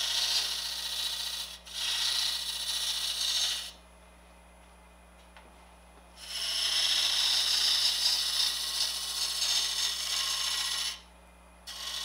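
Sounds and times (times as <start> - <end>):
scraper cutting wood on lathe: 0.0 - 3.7, 6.2 - 11.0, 11.7 - 12.0
faint lathe hum: 0.0 - 12.0.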